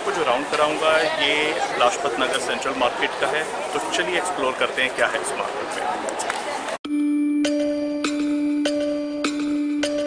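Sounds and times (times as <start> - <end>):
held steady musical note: 6.8 - 10.0
struck notes on an even beat: 6.9 - 10.0.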